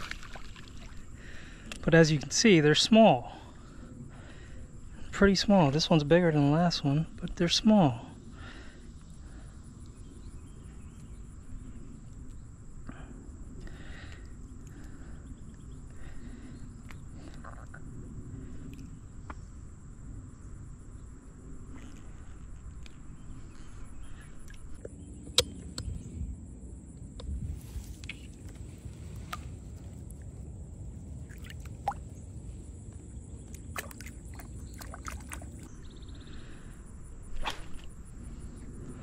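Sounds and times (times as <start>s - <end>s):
insects trilling: 0.0s - 39.0s
wind rumble: 8.1s - 39.0s
faint rustles: 27.3s - 31.1s.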